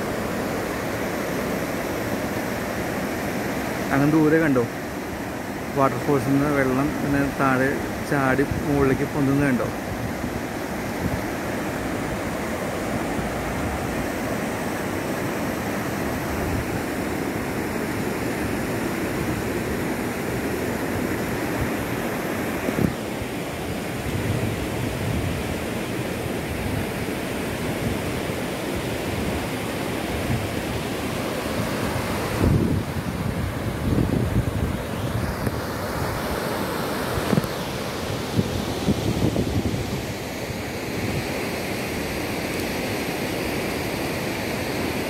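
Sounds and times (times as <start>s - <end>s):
river rushing over rapids: 0.0s - 45.0s
wind buffeting microphone: 32.0s - 35.7s.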